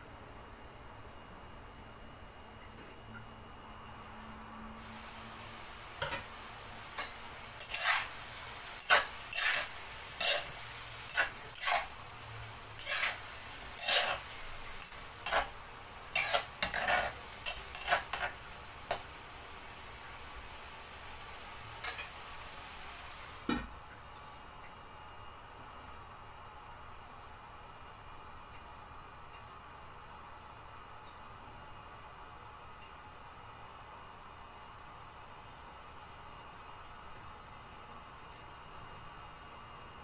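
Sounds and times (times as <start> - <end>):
food sizzling: 4.8 - 23.7
spatula scraping a wok: 6.9 - 19.1, 21.8 - 22.2.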